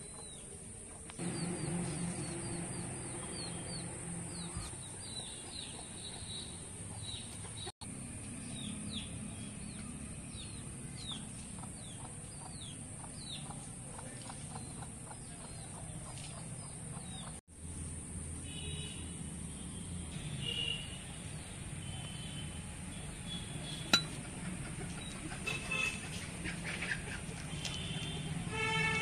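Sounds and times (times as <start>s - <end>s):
low background hum: 0.1s - 7.4s
chicks peeping: 1.2s - 7.7s, 11.0s - 17.4s.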